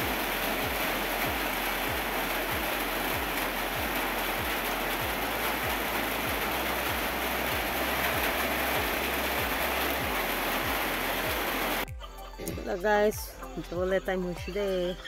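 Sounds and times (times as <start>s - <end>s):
steady rain falling: 0.0s - 11.9s
soft low thumps: 0.0s - 14.5s.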